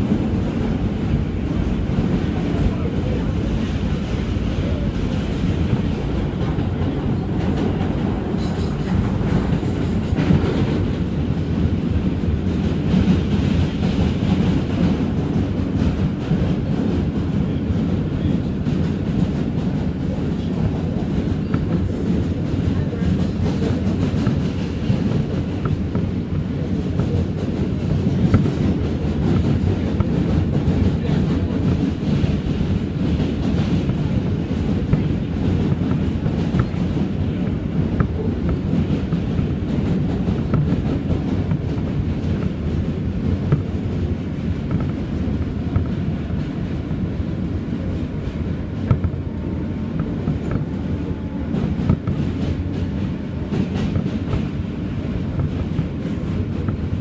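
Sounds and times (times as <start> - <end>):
subway train rumble: 0.0 - 57.0.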